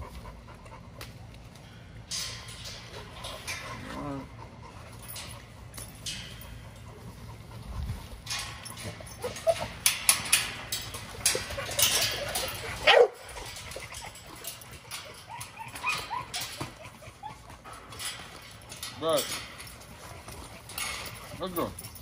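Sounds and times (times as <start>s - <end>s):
dogs rattling wire gate: 2.0s - 22.0s
dogs whining and yipping: 8.4s - 18.9s
dog crying loudly: 15.0s - 17.6s.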